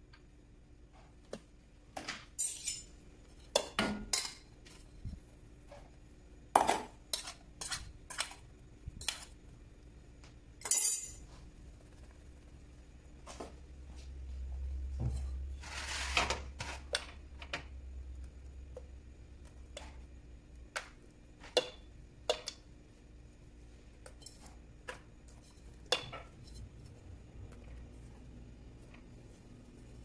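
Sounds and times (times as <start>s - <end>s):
dishes and cutlery clinking: 2.4s - 4.5s, 10.6s - 11.2s.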